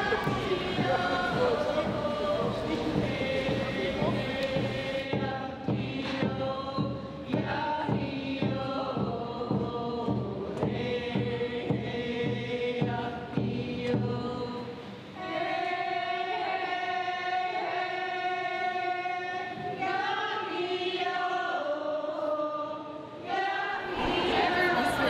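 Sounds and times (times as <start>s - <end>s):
steady beat: 0.0s - 5.0s
voices singing held notes: 0.0s - 25.0s.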